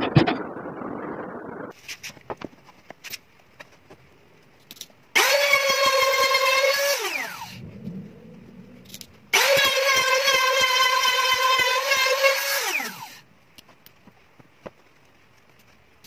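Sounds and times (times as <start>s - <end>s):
trim router whining: 5.2s - 7.6s, 9.3s - 13.2s.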